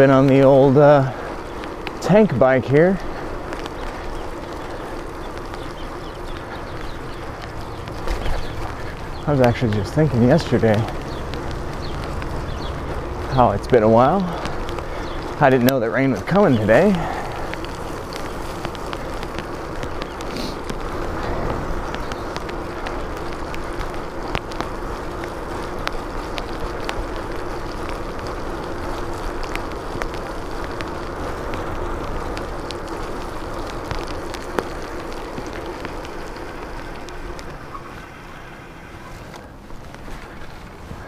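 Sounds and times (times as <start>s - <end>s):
bicycle tyres hissing on wet asphalt: 0.0s - 41.0s
bike clicks and ticks: 0.0s - 41.0s.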